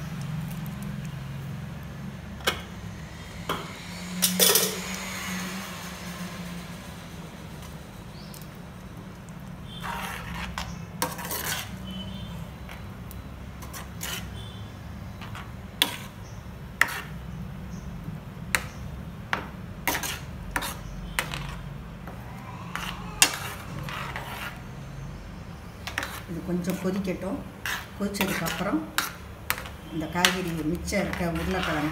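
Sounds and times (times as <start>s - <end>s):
metal spoon scraping pan: 4.1s - 5.0s, 9.6s - 12.8s, 13.6s - 14.6s, 15.2s - 16.2s, 16.8s - 17.2s, 19.8s - 24.8s, 25.8s - 31.9s.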